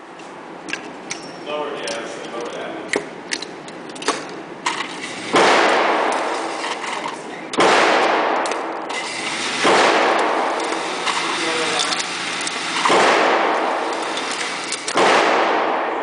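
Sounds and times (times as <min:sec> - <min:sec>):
gunshots with echo: 0:05.3 - 0:06.6, 0:07.5 - 0:16.0.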